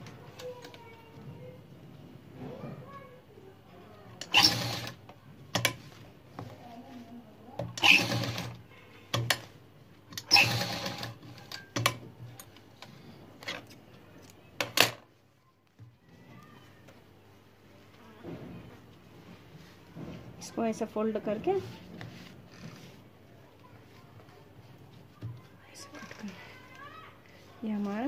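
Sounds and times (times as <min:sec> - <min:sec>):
sewing machine stitching: 0:04.2 - 0:05.0, 0:07.7 - 0:08.6, 0:10.2 - 0:11.5.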